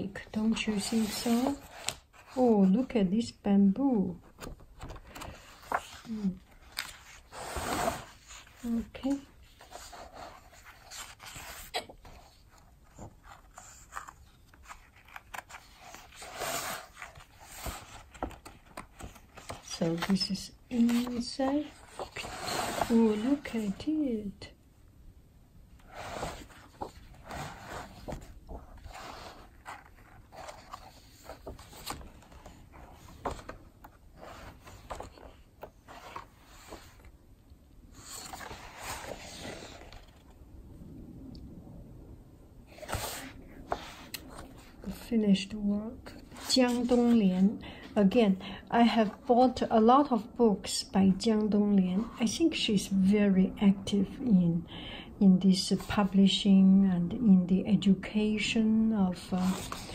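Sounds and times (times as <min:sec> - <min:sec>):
book pages turning: 0:00.2 - 0:02.8, 0:04.2 - 0:24.0, 0:25.8 - 0:37.1, 0:37.9 - 0:40.4, 0:42.7 - 0:45.1, 0:46.0 - 0:47.5, 0:59.2 - 0:59.9.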